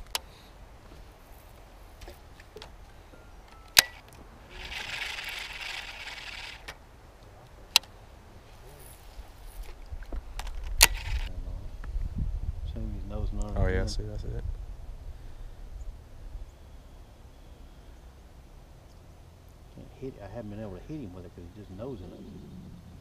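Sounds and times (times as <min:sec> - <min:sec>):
fishing reel clicking: 0:04.5 - 0:06.7.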